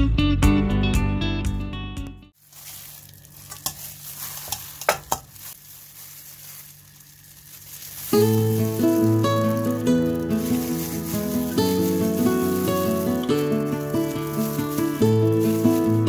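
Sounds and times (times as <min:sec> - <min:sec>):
plastic crinkling: 0:02.4 - 0:16.0
sharp crackles: 0:02.4 - 0:16.0
wet squelching: 0:02.4 - 0:16.0
guitar music: 0:08.0 - 0:16.0.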